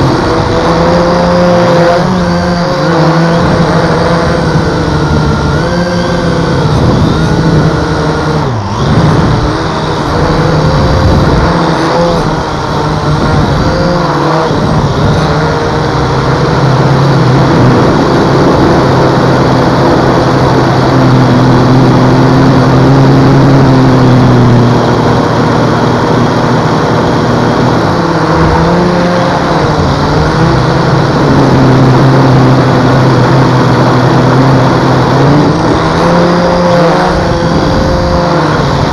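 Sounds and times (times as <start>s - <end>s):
toy drone propellers buzzing: 0.0s - 38.9s.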